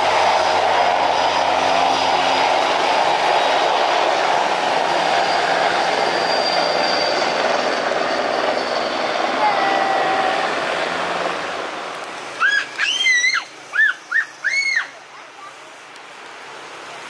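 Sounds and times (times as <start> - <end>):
helicopter rotors rushing: 0.0 - 9.5
high turbine whine: 0.0 - 12.0.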